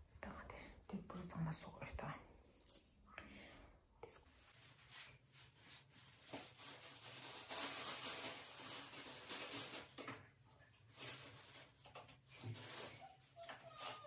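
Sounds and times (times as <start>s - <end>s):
plastic bag rustling: 4.5s - 14.0s.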